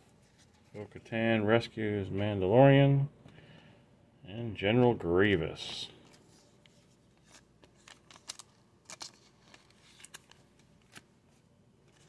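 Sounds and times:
trading cards clicking and rustling: 0:04.7 - 0:12.0.

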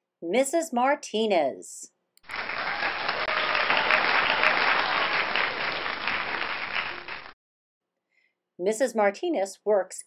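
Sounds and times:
crowd applause: 0:02.2 - 0:07.4.

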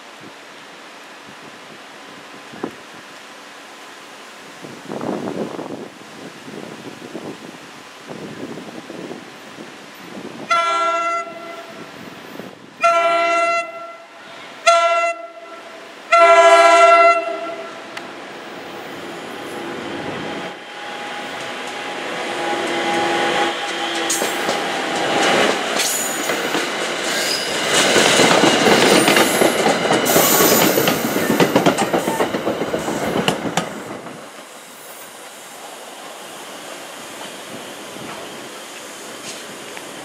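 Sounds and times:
train passing: 0:08.8 - 0:40.0
wheels clicking over rails: 0:21.3 - 0:34.3.

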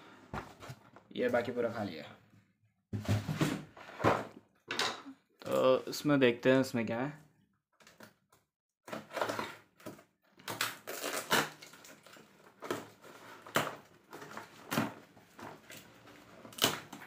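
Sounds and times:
packing tape ripping: 0:10.4 - 0:12.8, 0:16.4 - 0:17.0.

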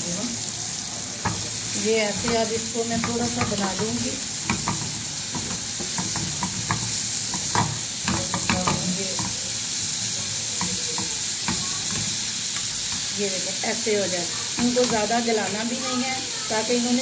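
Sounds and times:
carrots sizzling in oil: 0:00.0 - 0:17.0
spatula scraping a pan: 0:01.2 - 0:13.2.

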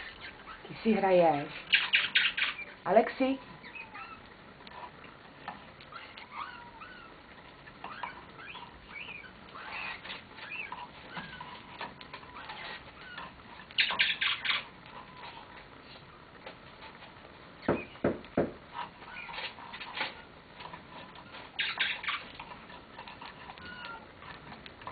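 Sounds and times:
parakeet chirps and squeaks: 0:00.0 - 0:02.9, 0:03.5 - 0:04.3, 0:05.9 - 0:15.5, 0:17.6 - 0:18.1, 0:19.0 - 0:20.3, 0:20.9 - 0:24.0.

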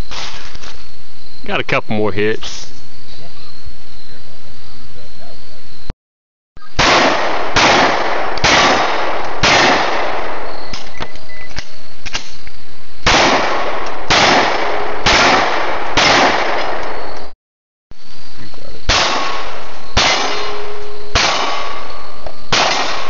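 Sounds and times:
pistol shots: 0:06.8 - 0:10.9, 0:13.0 - 0:17.2, 0:18.9 - 0:23.0.

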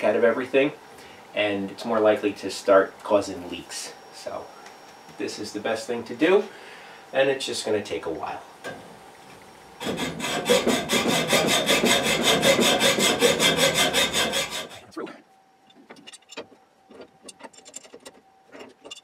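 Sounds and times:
hacksaw cutting metal pipe: 0:09.8 - 0:14.9.

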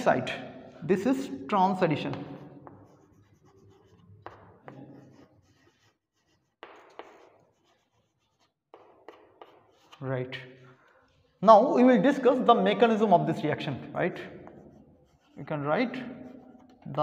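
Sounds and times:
chalk scratching on chalkboard: 0:02.1 - 0:11.4, 0:14.2 - 0:16.9.

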